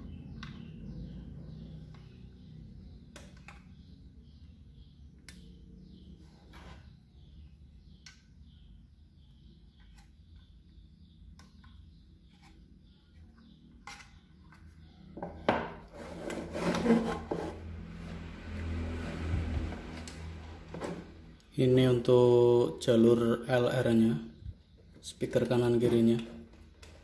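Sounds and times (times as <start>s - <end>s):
box rubbing and scraping on desk: 15.9s - 18.2s.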